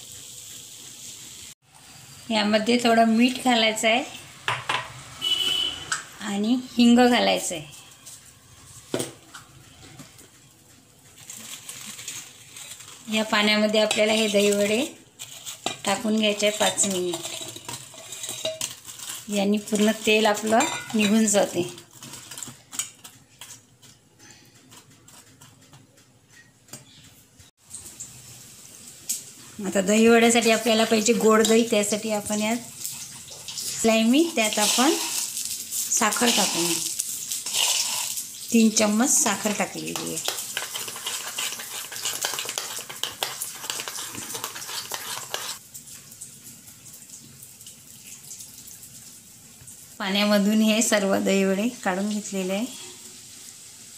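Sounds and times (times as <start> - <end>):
spoon stirring in a steel bowl: 11.2 - 27.1, 39.1 - 45.6.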